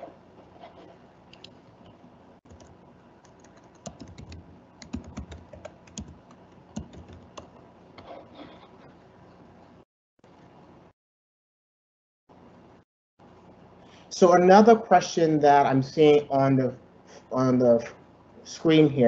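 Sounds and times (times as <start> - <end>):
faint steady hum: 0.0 - 10.9, 12.3 - 19.0
computer keyboard typing: 2.5 - 7.6.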